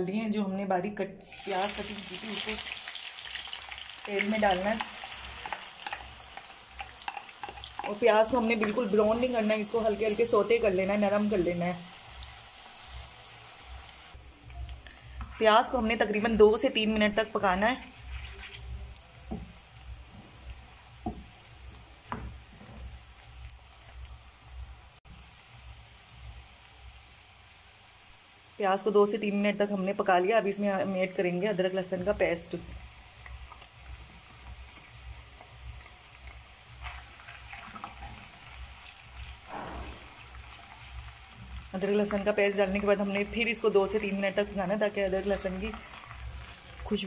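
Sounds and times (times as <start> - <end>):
onion sizzling in hot oil: 1.2 - 47.0
metal spoon scraping a pan: 4.7 - 8.0.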